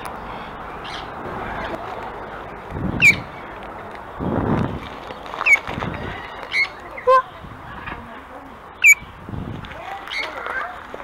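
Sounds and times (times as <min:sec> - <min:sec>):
parrot squawks: 0:08.8 - 0:09.0.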